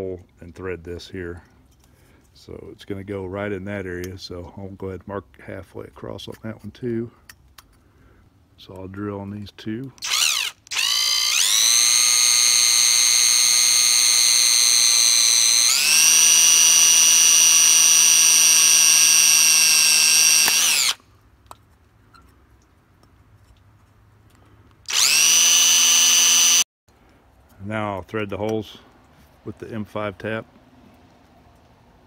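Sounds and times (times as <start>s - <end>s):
power drill whining through metal: 10.0s - 21.0s, 24.8s - 26.7s.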